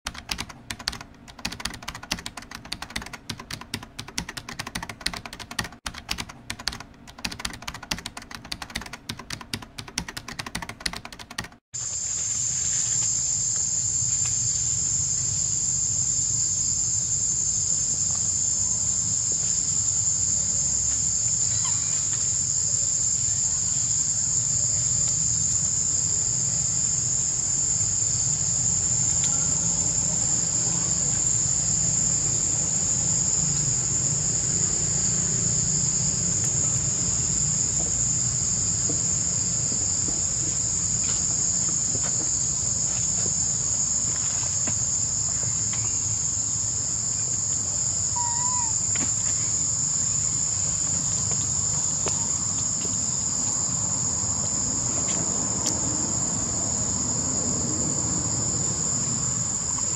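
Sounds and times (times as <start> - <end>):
rapid irregular clicking: 0.1 - 11.6
high-pitched insect drone: 11.8 - 59.9.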